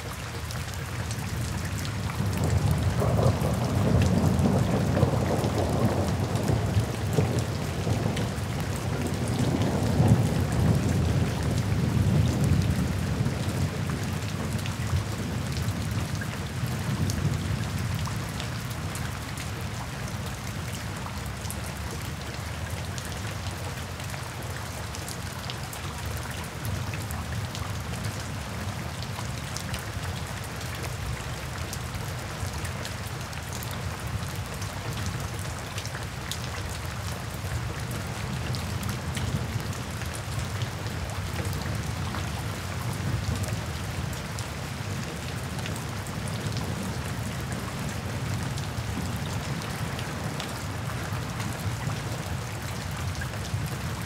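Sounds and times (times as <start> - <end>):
steady rain: 0.0 - 54.0
thunder rumble: 2.3 - 8.5.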